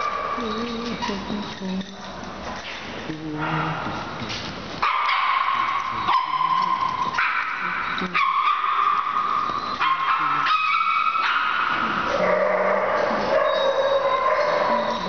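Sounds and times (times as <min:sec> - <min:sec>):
puppies barking and yipping: 0:00.0 - 0:02.6, 0:04.8 - 0:15.0
people's voices: 0:00.4 - 0:02.2.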